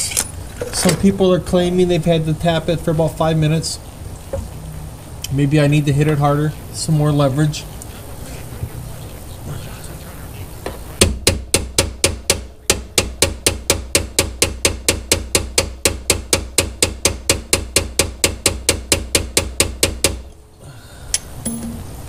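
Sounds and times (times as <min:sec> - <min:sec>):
hammer striking metal punch: 0:11.0 - 0:20.2, 0:21.4 - 0:22.0.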